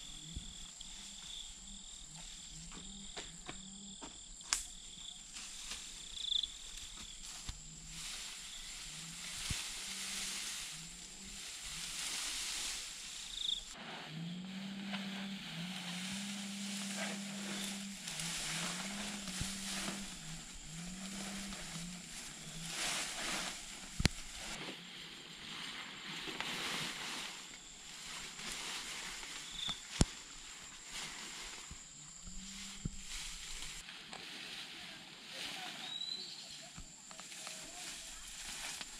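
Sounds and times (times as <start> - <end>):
faint insect whine: 0.0 - 38.9
sharp snaps: 4.4 - 4.8
bamboo branches rustling on grass: 4.4 - 38.9
low hum: 7.7 - 24.6.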